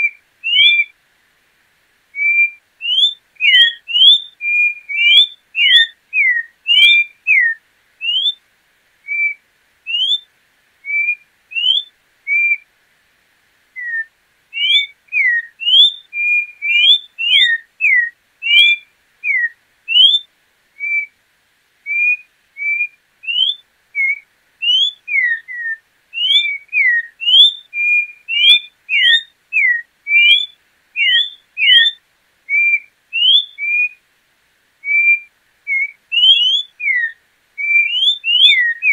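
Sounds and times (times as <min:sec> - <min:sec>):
bird whistling song: 0:00.0 - 0:01.0, 0:02.2 - 0:08.4, 0:09.0 - 0:12.7, 0:13.8 - 0:21.1, 0:21.9 - 0:34.0, 0:34.8 - 0:38.9.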